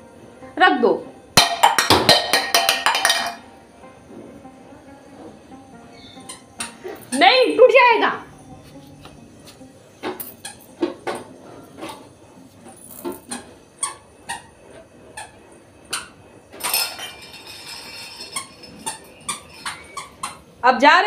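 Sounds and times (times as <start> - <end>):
metal utensils clinking on floor: 1.4 - 3.5, 10.1 - 10.8, 12.7 - 14.0, 15.9 - 20.4.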